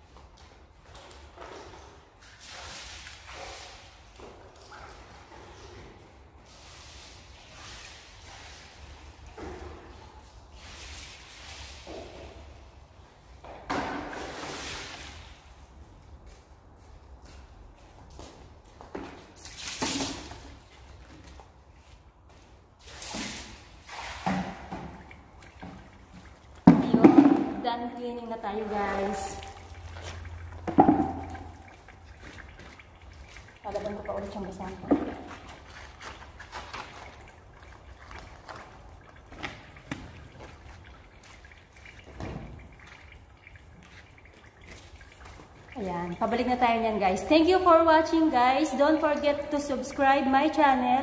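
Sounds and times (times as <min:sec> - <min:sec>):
rag washed in water: 0:22.8 - 0:51.0
water dripping: 0:22.8 - 0:51.0.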